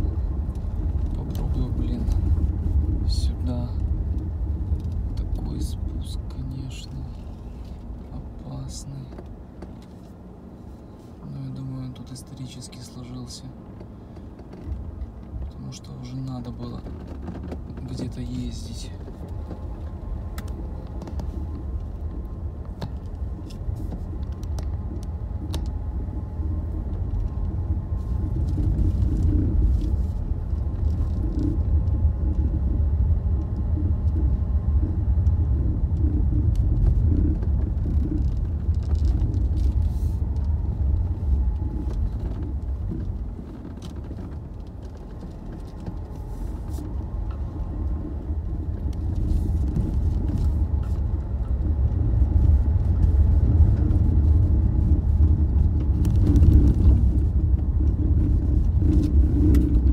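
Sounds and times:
tyres rumbling on dirt road: 0:00.0 - 0:59.9
car knocks and rattles: 0:09.0 - 0:10.4, 0:13.7 - 0:59.9.

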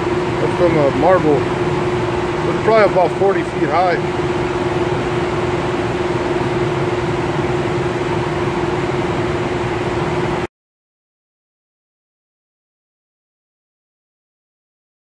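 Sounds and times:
machinery humming: 0:00.0 - 0:10.5.

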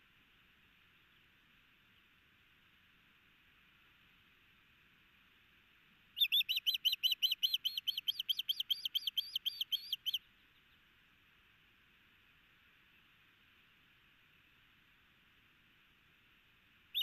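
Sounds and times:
osprey whistled calls: 0:06.2 - 0:10.2.

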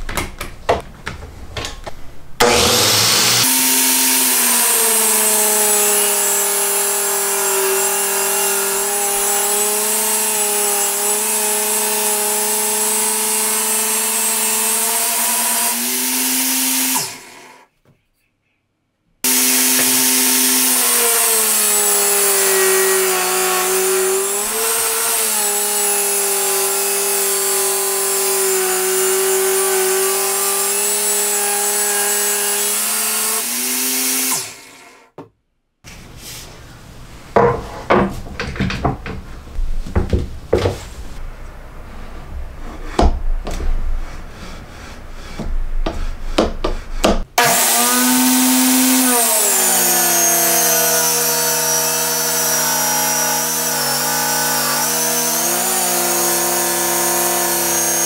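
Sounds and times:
angle grinder whining: 0:02.4 - 0:17.7, 0:19.2 - 0:35.1, 0:47.4 - 0:58.0.

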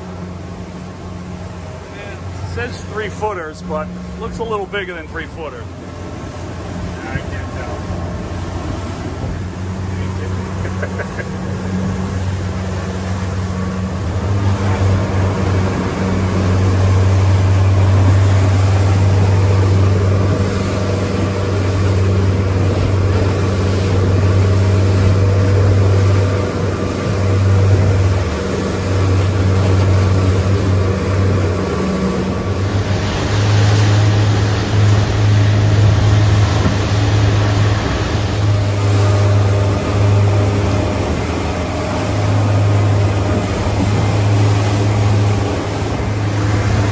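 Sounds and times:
outboard motors droning: 0:00.0 - 0:46.9
water rushing and spray: 0:00.0 - 0:46.9.

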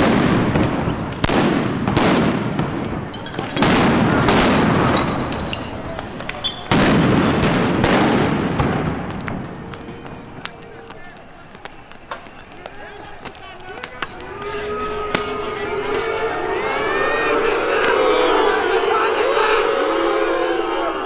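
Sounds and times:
loud explosive bangs with echo: 0:00.0 - 0:09.7.

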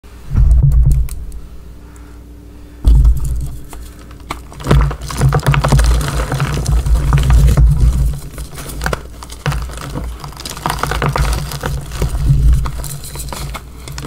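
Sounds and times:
soft low thuds: 0:00.2 - 0:01.7, 0:02.8 - 0:03.6
chalk crunching and crumbling: 0:02.8 - 0:14.0.

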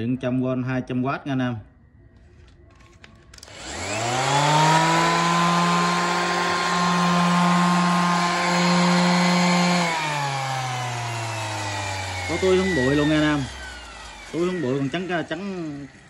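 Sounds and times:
electric sander motor whine: 0:03.4 - 0:16.0.

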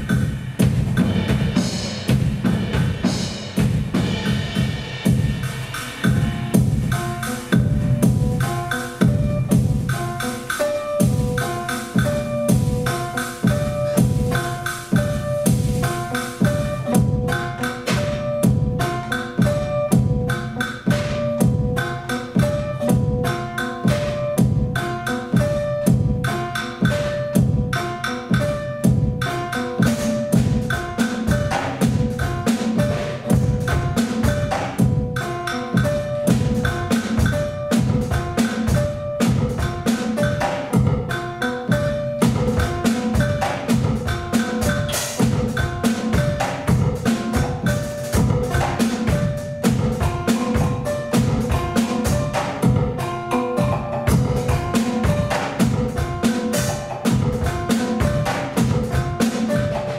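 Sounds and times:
drum kit playing: 0:00.0 - 0:59.9.

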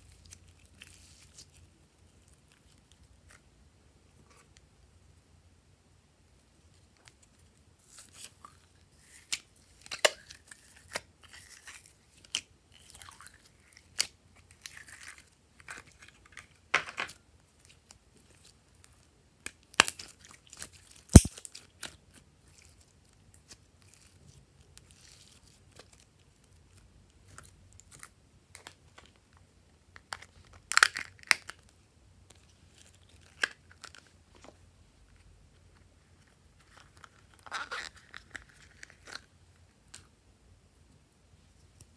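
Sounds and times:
slime crackling and popping: 0:19.4 - 0:22.0
slime snapping: 0:21.2 - 0:21.4.

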